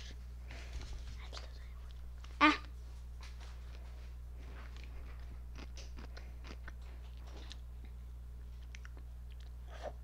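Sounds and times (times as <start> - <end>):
person chewing crunchy food: 3.7 - 10.0.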